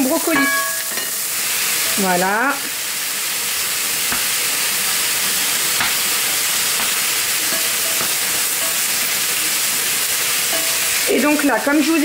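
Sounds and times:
food sizzling in oil: 0:00.0 - 0:12.0
spatula knocking pan: 0:00.3 - 0:01.2, 0:05.7 - 0:06.1, 0:06.7 - 0:08.9, 0:10.5 - 0:10.9.

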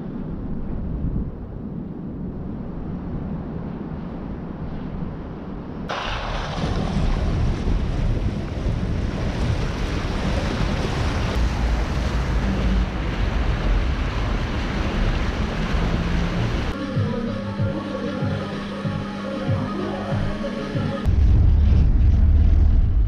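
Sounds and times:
wind buffeting microphone: 0:00.0 - 0:17.7.

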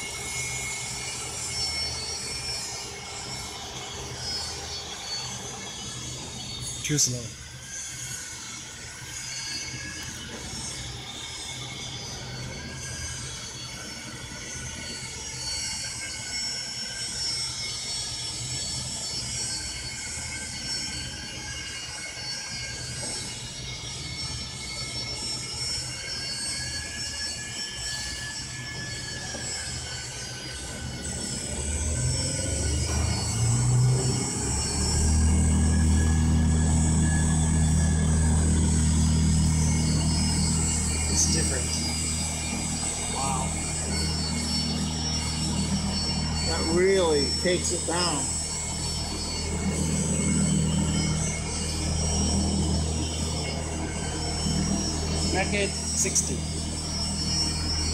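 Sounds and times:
high wavering whine: 0:00.0 - 0:57.9
low motor hum: 0:30.7 - 0:57.9.

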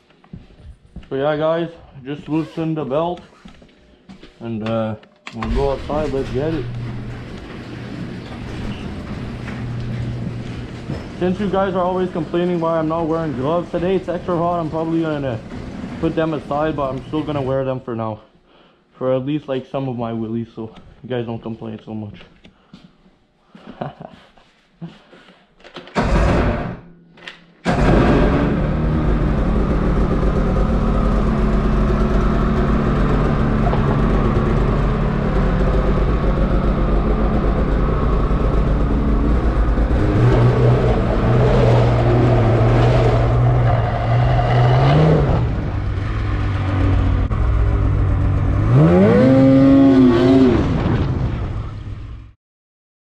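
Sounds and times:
snowmobile engine running and revving: 0:27.8 - 0:51.2.

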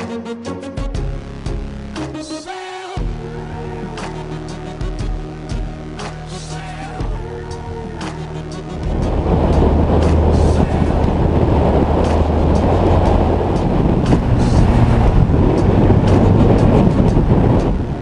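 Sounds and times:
vehicle engine running under load: 0:08.6 - 0:18.0.

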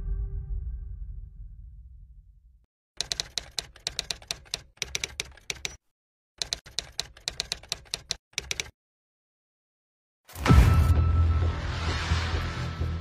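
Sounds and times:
keyboard key clicks: 0:03.0 - 0:05.8, 0:06.4 - 0:08.7.

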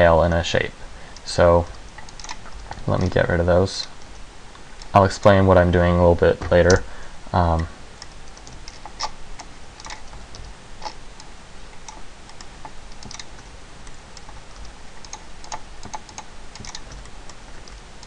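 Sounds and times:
keyboard keys and mouse clicking: 0:01.2 - 0:03.2, 0:07.6 - 0:18.0.

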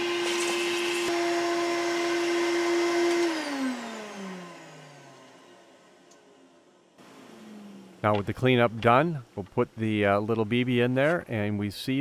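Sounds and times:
vacuum cleaner motor whine: 0:00.0 - 0:08.2.

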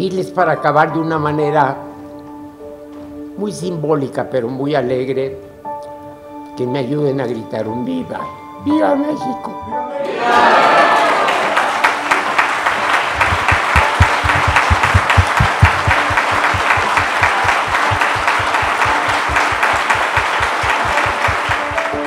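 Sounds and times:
audience applauding: 0:10.3 - 0:22.0
fast low thumping: 0:13.2 - 0:21.8.

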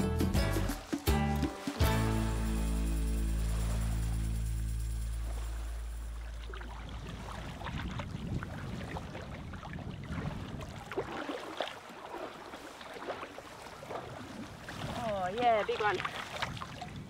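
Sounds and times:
splashing of wading in water: 0:00.7 - 0:17.0
wind rumble on microphone: 0:03.5 - 0:11.5, 0:13.8 - 0:17.0.

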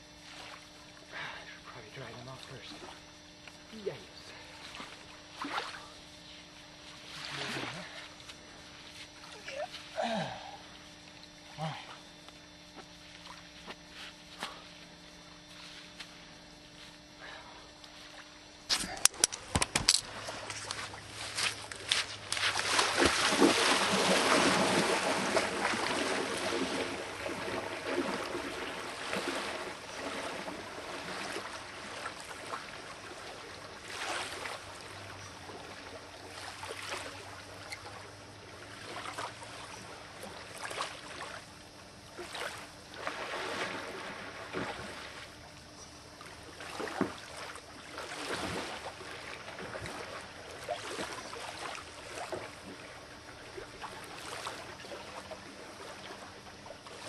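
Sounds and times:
water lapping: 0:03.8 - 0:12.3, 0:20.0 - 0:57.0
splashing in shallow water: 0:04.3 - 0:06.2, 0:06.8 - 0:09.7, 0:18.0 - 0:45.6, 0:46.2 - 0:57.0.

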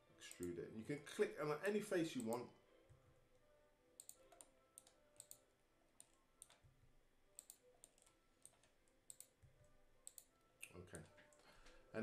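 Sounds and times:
mouse and keyboard clicks: 0:06.0 - 0:06.6.

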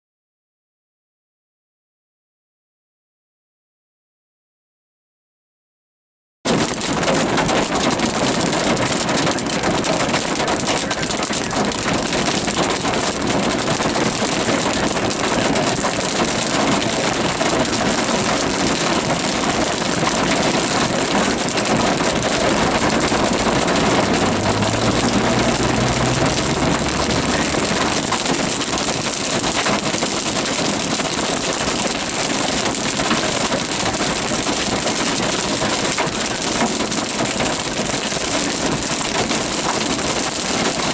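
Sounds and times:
rain and hail drumming on car: 0:06.5 - 0:40.9
road and engine noise: 0:06.6 - 0:40.9
low hum: 0:22.6 - 0:28.9.

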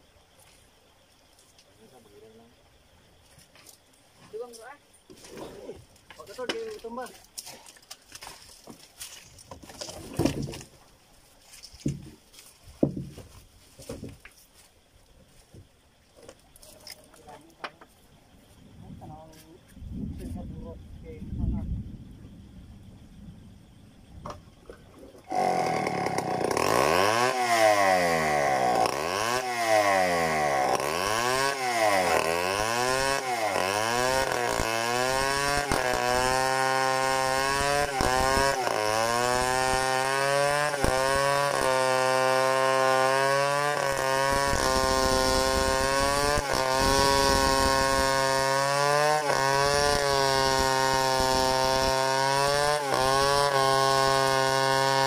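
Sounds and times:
chainsaw revving and cutting log: 0:25.3 - 0:55.0.

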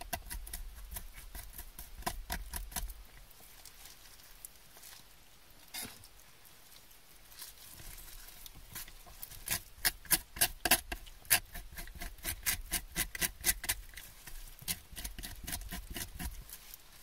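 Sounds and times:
knife scraping fish bone: 0:00.0 - 0:02.9, 0:08.7 - 0:16.4.

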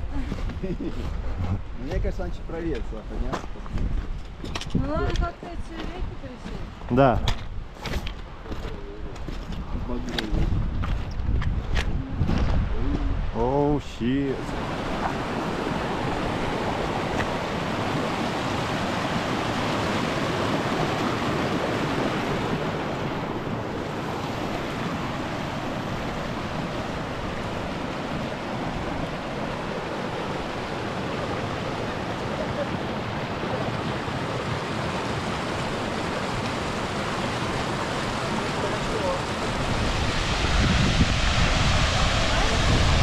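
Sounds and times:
river rushing: 0:13.2 - 0:43.0.

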